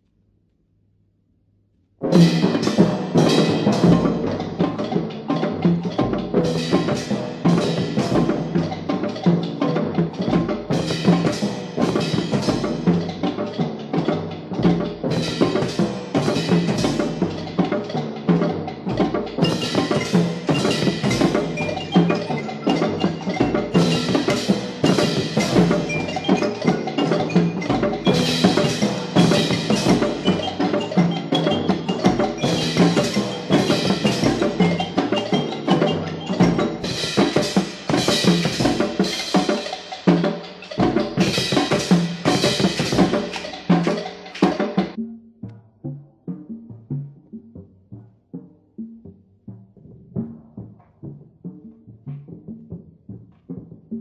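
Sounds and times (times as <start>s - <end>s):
wood block strikes: 2.0s - 46.0s
drums beating rhythm: 2.0s - 54.0s
folk ensemble playing: 19.7s - 38.2s.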